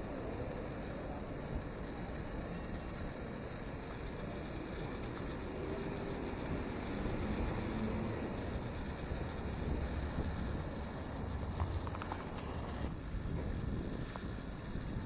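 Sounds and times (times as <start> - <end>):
passing traffic: 0.0 - 15.0
wind on microphone: 8.3 - 15.0.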